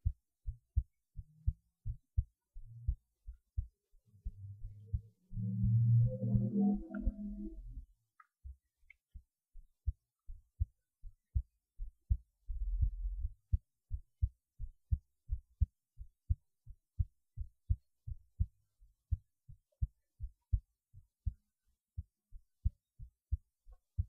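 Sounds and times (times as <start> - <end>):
heartbeat thumps: 0.0 - 8.6, 11.3 - 15.7, 17.0 - 20.6
low rumble: 4.0 - 8.0, 12.5 - 13.4.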